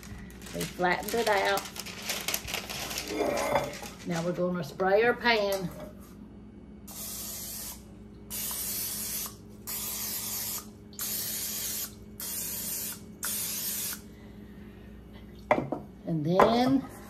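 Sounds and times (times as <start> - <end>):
aerosol spray can hissing: 6.9 - 14.0.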